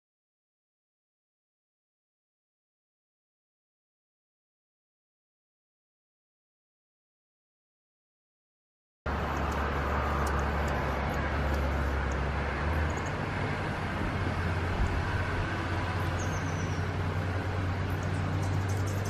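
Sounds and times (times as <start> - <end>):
hummingbird ticks: 9.1 - 13.5, 14.6 - 19.0
low outdoor rumble: 9.1 - 19.0
hummingbird squeak: 16.0 - 19.0.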